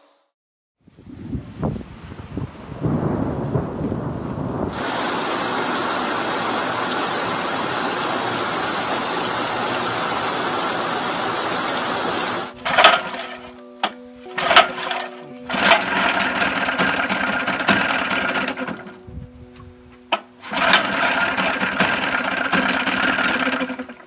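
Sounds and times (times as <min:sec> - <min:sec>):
low rumble of thunder: 0:01.0 - 0:05.0
heavy rain hissing: 0:01.2 - 0:18.7, 0:20.4 - 0:23.9.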